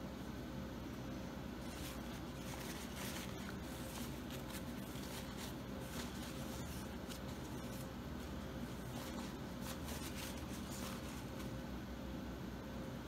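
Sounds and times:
faint steady hum: 0.0s - 13.0s
paper towel crumpling: 1.5s - 11.7s.

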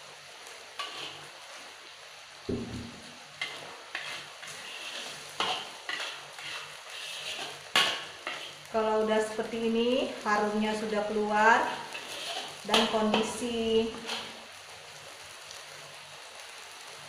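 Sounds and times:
paste sizzling: 0.4s - 2.0s, 2.6s - 15.2s
metal spatula scraping a wok: 0.8s - 1.3s, 3.4s - 8.7s, 11.6s - 14.4s.

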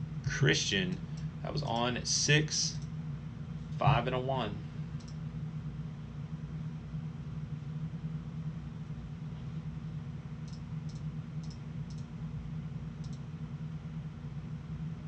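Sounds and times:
steady low hum: 0.0s - 15.0s
computer clicks: 5.0s - 5.2s, 10.4s - 12.1s, 13.0s - 13.2s.

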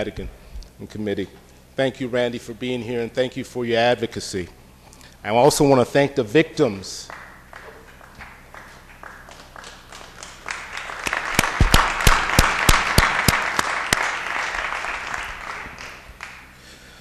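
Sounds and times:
applause: 7.0s - 16.6s
loud single claps: 7.1s - 16.5s.

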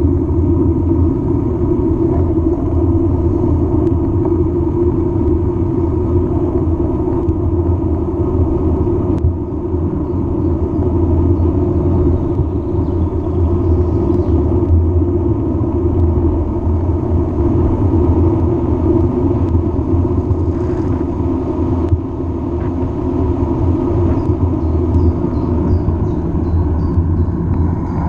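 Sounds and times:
wind buffeting microphone: 0.0s - 28.0s.

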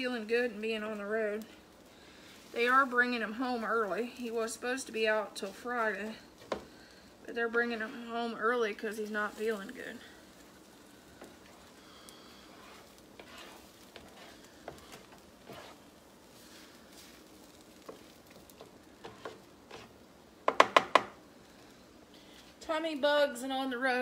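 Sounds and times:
eggs sizzling on griddle: 0.0s - 24.0s
spatula scraping griddle: 7.6s - 21.0s
spatula knocking against pan: 20.4s - 21.2s.

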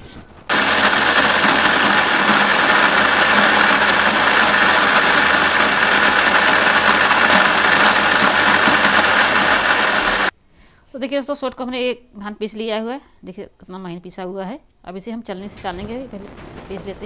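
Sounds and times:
mixer grinder motor running: 0.5s - 10.3s.

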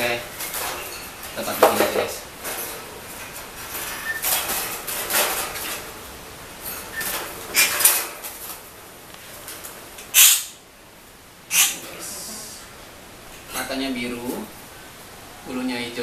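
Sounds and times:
loud rustles: 0.0s - 10.0s
wire cage rattling and scraping: 0.0s - 10.4s.

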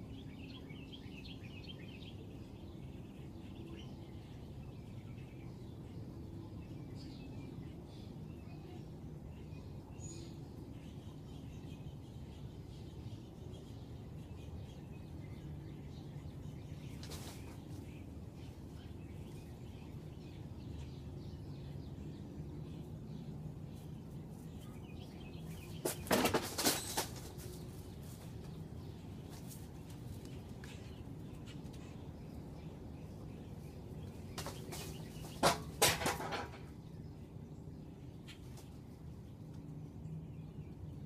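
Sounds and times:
loud scuffling: 25.6s - 28.5s.

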